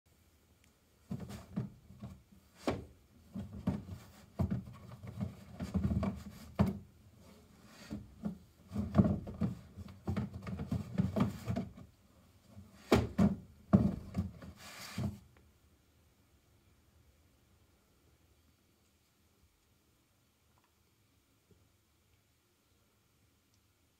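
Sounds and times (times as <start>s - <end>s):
box dragged on wooden shelf: 8.7s - 11.8s, 13.8s - 15.2s.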